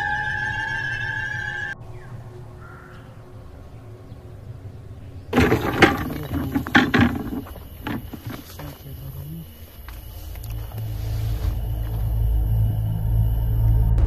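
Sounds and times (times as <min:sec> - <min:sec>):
eerie music with held tones: 0:00.0 - 0:05.2, 0:09.9 - 0:14.0
low hum: 0:00.0 - 0:14.0
knocks and clatter: 0:05.4 - 0:08.8.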